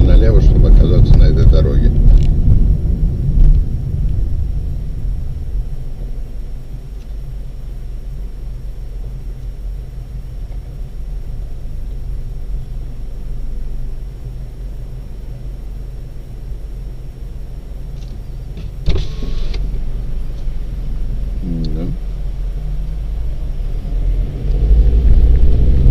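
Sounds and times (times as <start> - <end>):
car engine rumble from cabin: 0.0 - 25.9
brief hiss: 18.6 - 19.7.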